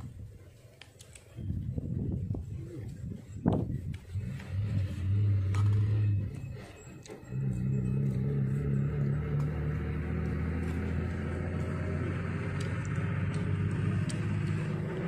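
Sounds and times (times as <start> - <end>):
motor engine humming: 3.1 - 15.0.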